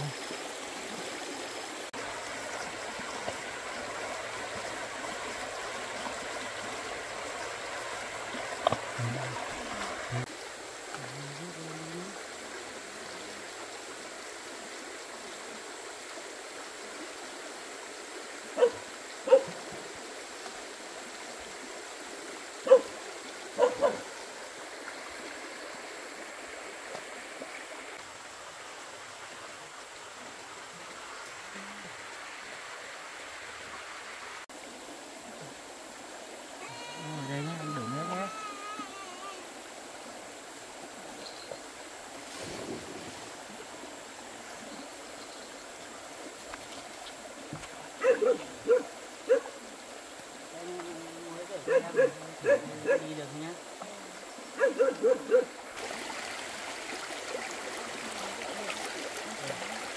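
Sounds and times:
running water: 0.0s - 59.9s
dog barking: 18.6s - 19.5s, 22.6s - 22.9s, 23.6s - 24.1s, 48.0s - 49.5s, 51.7s - 53.1s, 54.6s - 55.5s.

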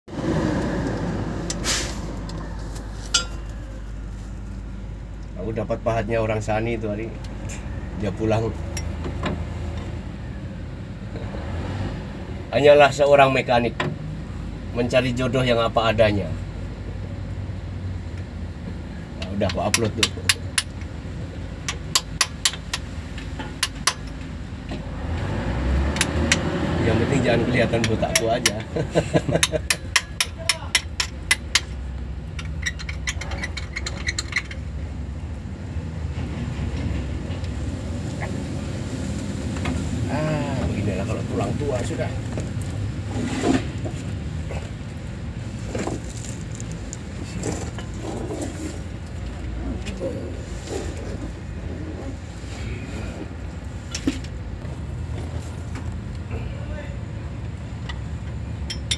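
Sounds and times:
hammer striking steel chisel: 3.1s - 3.5s, 19.5s - 20.8s, 29.4s - 31.8s.

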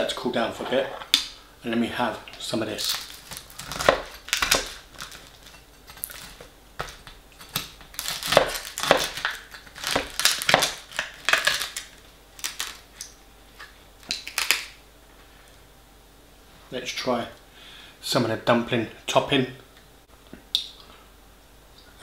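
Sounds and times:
foil tray crinkling: 2.7s - 12.9s
fork scraping through pie crust: 3.2s - 10.2s.

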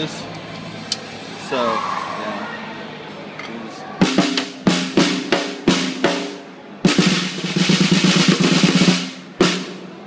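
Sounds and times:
snare drum hits and roll: 4.0s - 10.0s.

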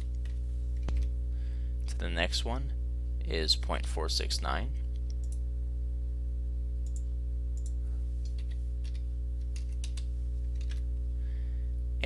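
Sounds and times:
low electrical hum: 0.0s - 12.0s
computer mouse and keyboard clicks: 6.9s - 10.8s.

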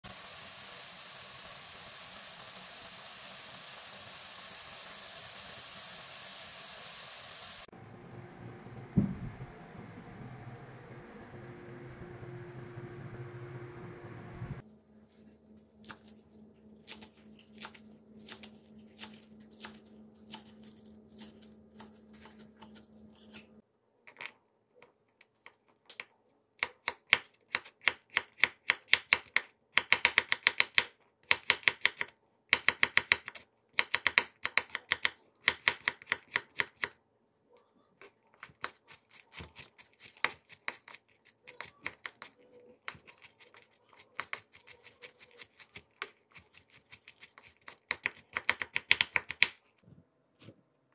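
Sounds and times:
faint low hum: 7.8s - 20.7s.

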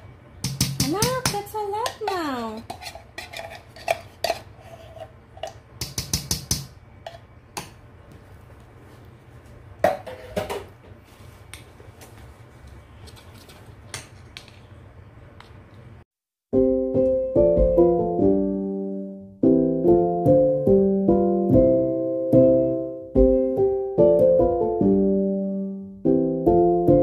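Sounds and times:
spoons clinking in metal bowl: 0.5s - 6.3s.

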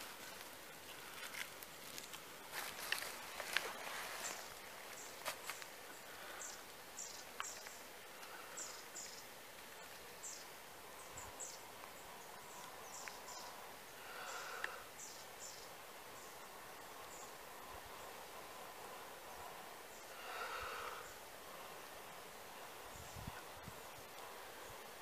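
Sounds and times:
faint tinder clicks: 0.1s - 5.8s, 7.1s - 10.1s.

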